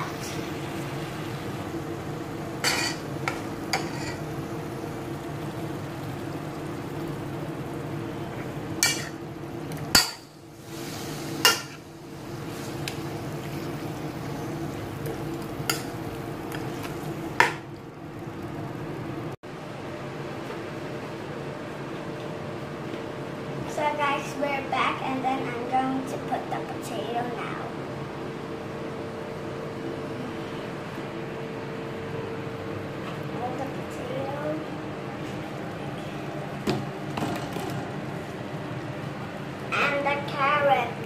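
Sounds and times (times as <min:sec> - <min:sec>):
chicken frying in hot oil: 0:00.0 - 0:19.4
steady hum: 0:00.0 - 0:41.0
metal spoon scraping a pot: 0:02.6 - 0:03.0, 0:03.7 - 0:04.2.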